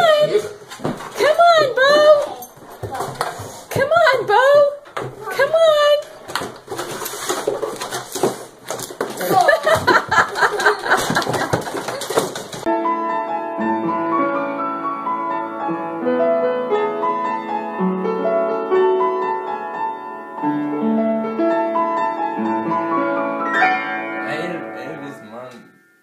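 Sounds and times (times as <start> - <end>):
scuffling noise: 6.1 - 12.7
upright piano playing: 12.6 - 26.0.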